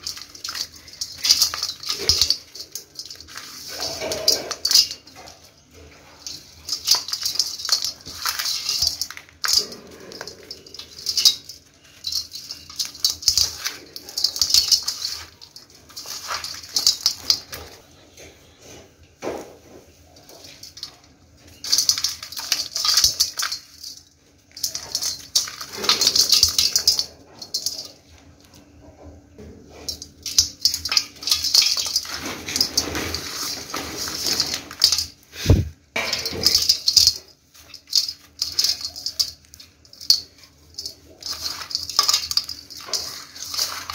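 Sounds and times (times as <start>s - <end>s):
soil crumbs falling on metal plate: 0.0s - 17.8s, 29.4s - 43.9s.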